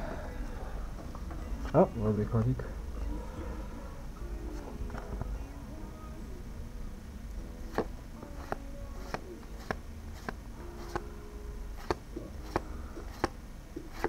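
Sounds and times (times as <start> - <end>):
trading cards snapping: 7.7 - 11.1, 11.8 - 14.0.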